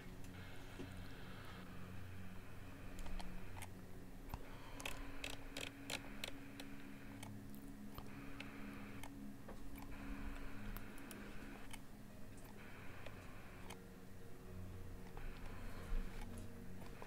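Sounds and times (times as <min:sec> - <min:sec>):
low steady hum: 0:00.0 - 0:17.0
light mechanical clicks: 0:02.9 - 0:13.8.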